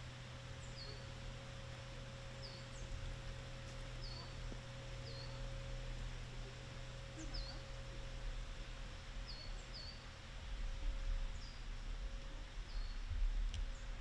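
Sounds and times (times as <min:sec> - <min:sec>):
steady low hum: 0:00.0 - 0:14.0
small bird chirping: 0:04.0 - 0:04.4, 0:05.0 - 0:05.4, 0:07.2 - 0:07.6.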